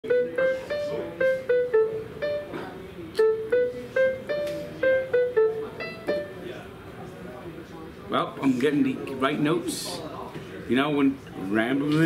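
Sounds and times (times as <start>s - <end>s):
electronic keyboard melody: 0.0s - 6.8s.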